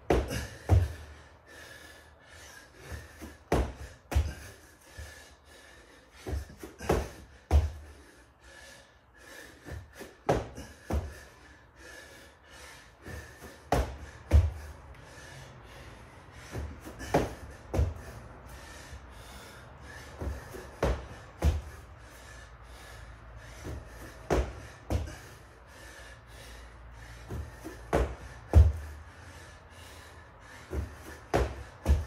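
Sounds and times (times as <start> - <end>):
man breathing: 0.0 - 32.0
feet and hands thudding on floor: 30.7 - 32.0.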